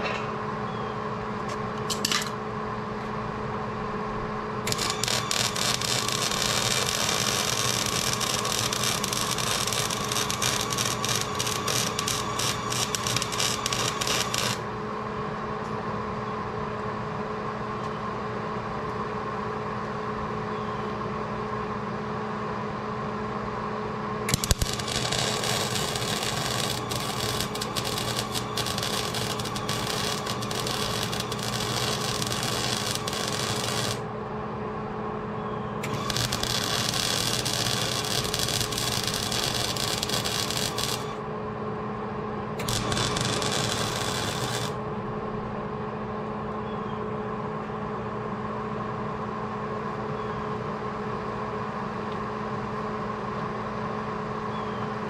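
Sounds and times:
steady hum: 0.0 - 20.2, 21.0 - 50.0
welding arc crackling: 4.7 - 14.7, 24.3 - 34.1, 35.8 - 41.2, 42.6 - 44.8.

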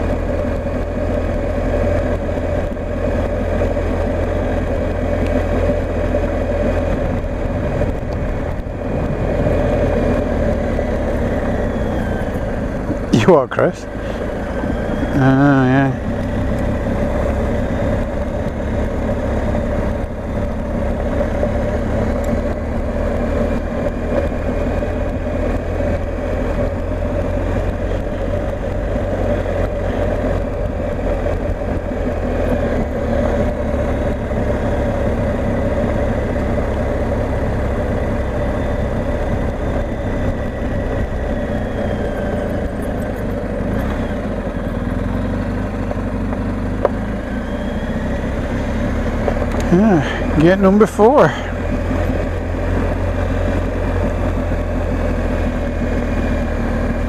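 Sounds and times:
wind noise: 0.0 - 13.3
motorcycle engine running: 0.0 - 57.0.

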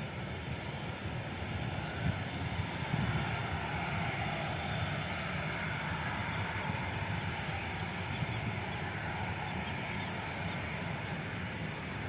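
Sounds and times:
jet engines hissing and humming: 0.0 - 12.0.

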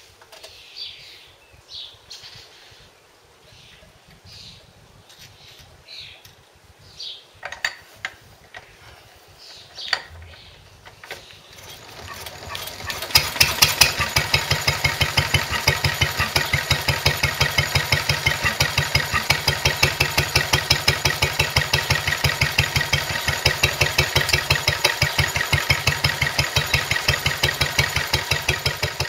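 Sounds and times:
birds singing faintly: 0.0 - 29.0
engine starting clicks: 10.3 - 29.0
stationary engine running: 11.5 - 29.0.

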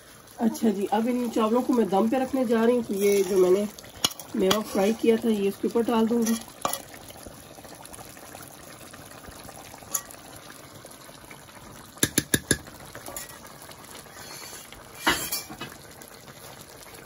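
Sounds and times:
metal spoon clinking on pot: 9.9 - 10.2.

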